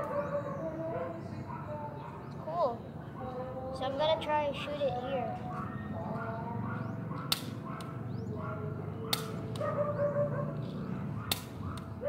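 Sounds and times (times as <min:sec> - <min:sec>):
toy pistol firing snaps: 0:07.3 - 0:07.6, 0:09.1 - 0:09.5, 0:11.3 - 0:11.9.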